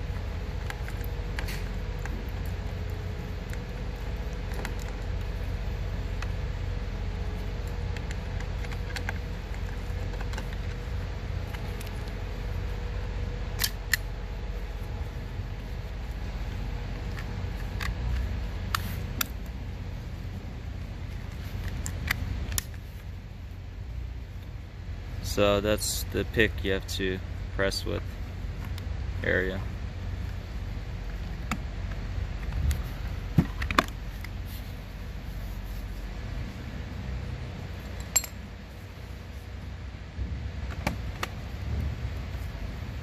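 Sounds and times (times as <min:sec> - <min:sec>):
steady low rumble: 0:00.0 - 0:43.0
sharp ringing clink: 0:38.0 - 0:38.4.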